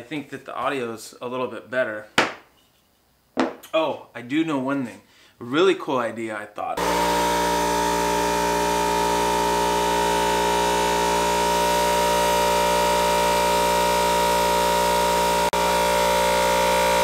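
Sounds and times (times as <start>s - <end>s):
air compressor droning: 6.8s - 17.0s.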